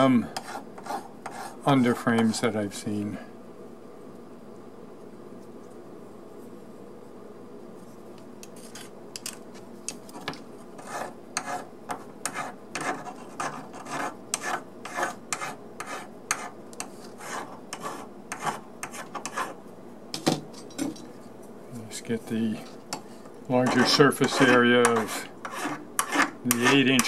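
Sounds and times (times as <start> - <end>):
file rasping on metal: 0.4 - 1.6, 10.8 - 19.6, 22.6 - 27.0.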